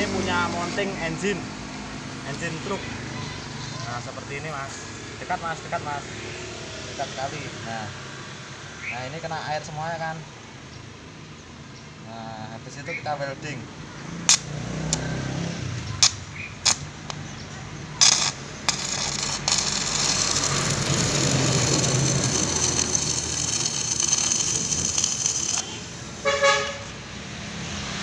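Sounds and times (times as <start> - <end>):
welding arc hissing: 14.3 - 15.0, 16.0 - 17.3, 18.0 - 27.1
welder clicks and sputters: 14.3 - 15.1, 16.0 - 17.4, 18.0 - 26.0.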